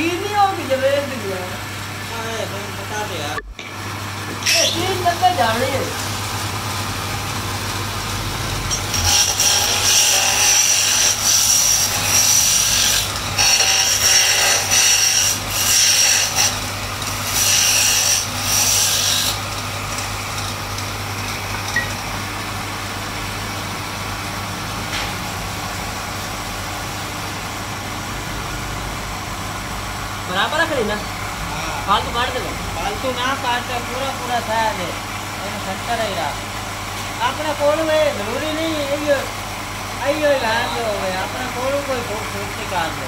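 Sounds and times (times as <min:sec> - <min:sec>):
wood lathe humming: 0:00.7 - 0:21.6.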